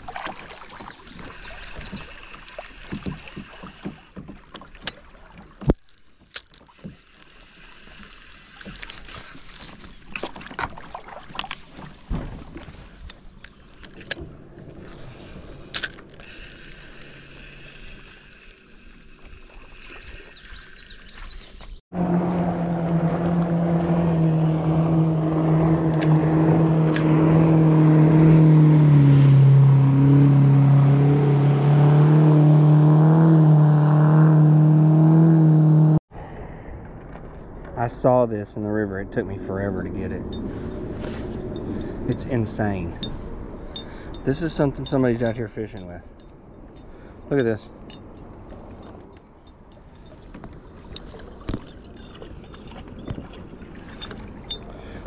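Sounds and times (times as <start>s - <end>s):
light water splashes: 0.0s - 22.4s, 39.2s - 55.0s
loud motor drone: 22.0s - 36.0s.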